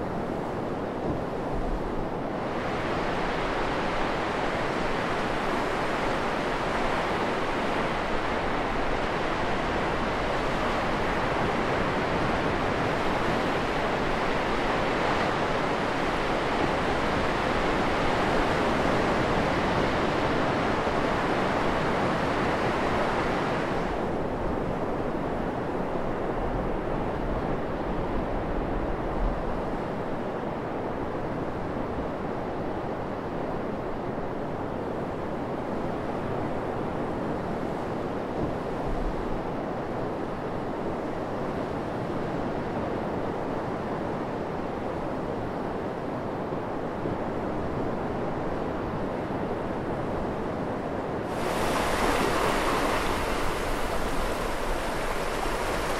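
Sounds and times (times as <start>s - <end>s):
surf breaking on a sandy beach: 46.9s - 55.9s.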